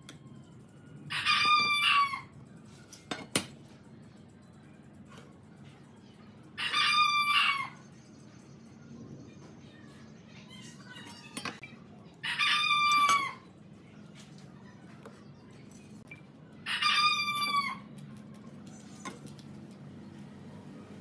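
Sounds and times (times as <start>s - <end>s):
rooster crowing: 1.1s - 2.3s, 6.6s - 7.8s, 12.2s - 13.4s, 16.6s - 17.9s.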